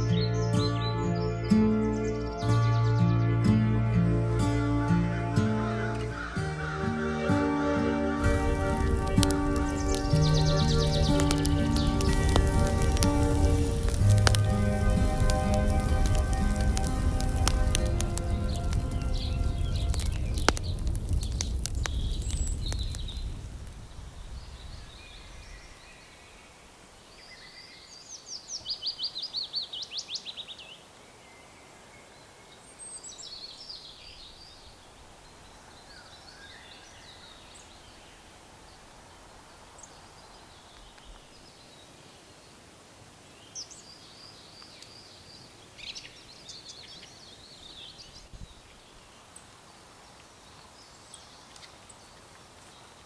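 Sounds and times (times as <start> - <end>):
birds singing: 0.0 - 3.9, 4.8 - 23.4, 24.2 - 53.0
low rumble with crackles: 8.2 - 26.0.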